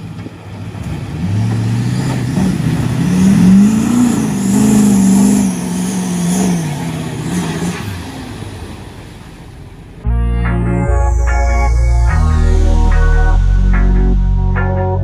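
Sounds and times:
pickup truck engine revving: 0.0s - 10.1s.

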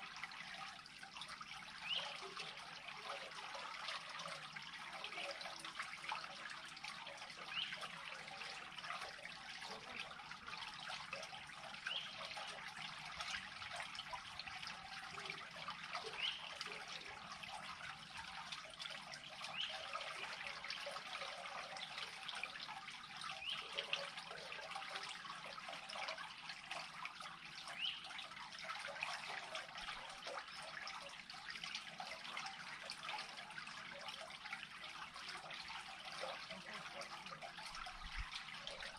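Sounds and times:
water trickling: 0.0s - 38.9s.

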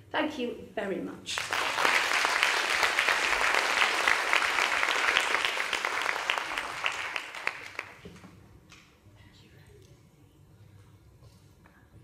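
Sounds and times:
audience applauding: 1.3s - 8.2s.

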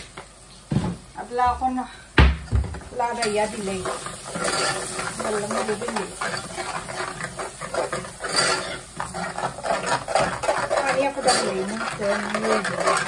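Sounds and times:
spoon scraping in pot: 3.2s - 13.0s.

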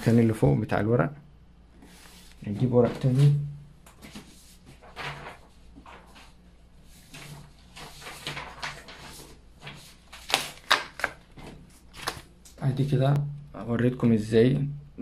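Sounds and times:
printer paper rustling: 1.8s - 12.3s.

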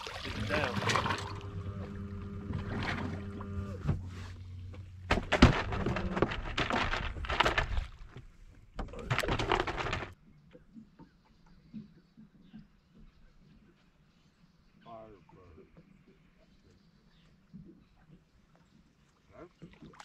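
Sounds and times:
steady low hum: 0.4s - 7.2s
knocks and scuffing on boat deck: 2.5s - 7.6s.

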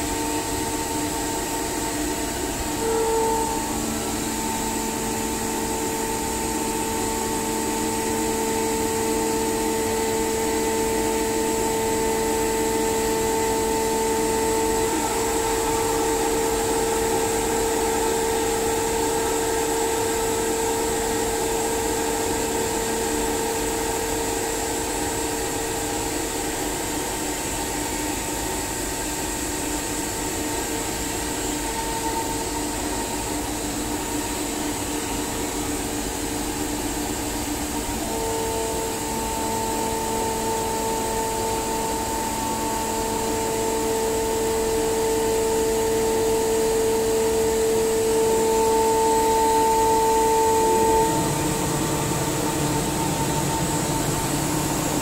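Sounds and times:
air compressor humming: 0.0s - 55.0s.

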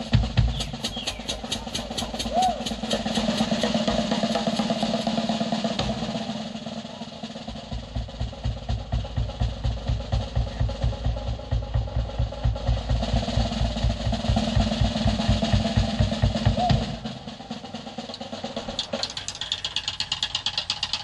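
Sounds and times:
bass drum beats: 0.0s - 6.1s, 7.4s - 17.4s
cymbal and snare: 0.0s - 21.0s
drum roll: 0.0s - 21.0s.

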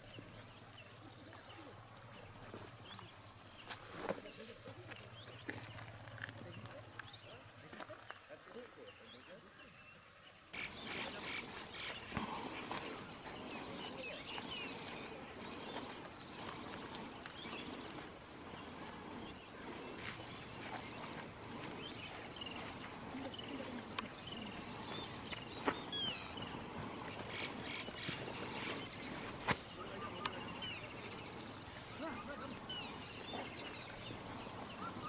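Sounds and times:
small birds chirping: 0.0s - 35.0s
low murmur: 10.6s - 35.0s.

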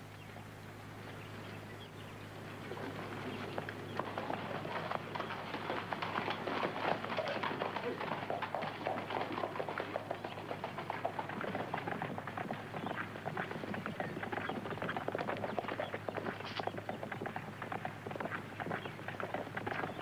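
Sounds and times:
horse hooves on dirt: 0.0s - 20.0s.

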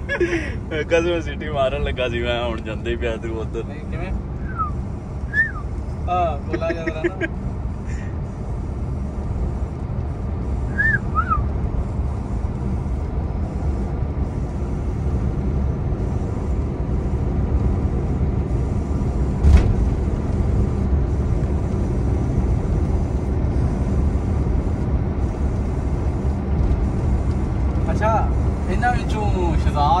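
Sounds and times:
truck engine and road rumble: 0.0s - 30.0s
short chirps: 4.4s - 5.6s, 10.7s - 11.5s.

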